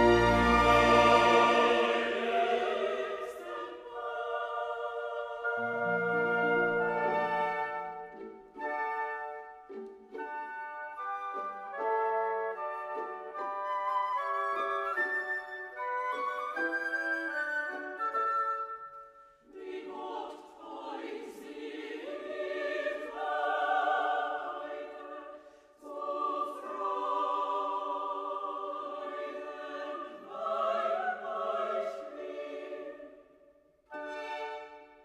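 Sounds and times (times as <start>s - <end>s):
choir singing held chords: 0.0s - 8.2s, 19.4s - 34.9s.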